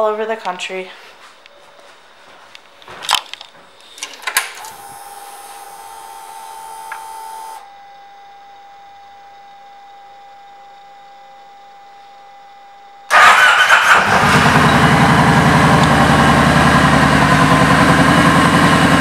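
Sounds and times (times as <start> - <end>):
fuel pump priming whine: 4.6 - 12.2, 12.8 - 19.0
ignition switch clicks: 6.8 - 7.2.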